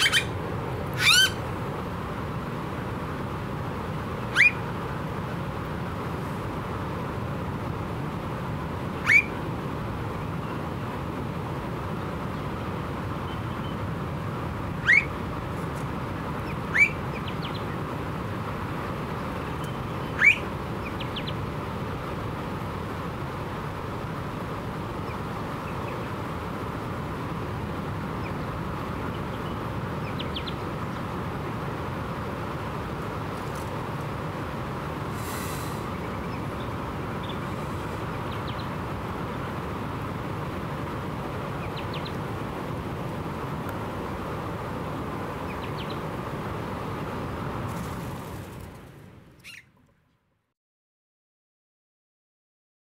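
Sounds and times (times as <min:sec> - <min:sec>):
bird giving upward-sweeping calls: 0:00.0 - 0:01.4, 0:04.3 - 0:04.6, 0:09.0 - 0:09.4, 0:14.8 - 0:15.1, 0:16.5 - 0:17.6, 0:19.6 - 0:21.4, 0:49.4 - 0:49.8
low background rumble: 0:00.0 - 0:50.1.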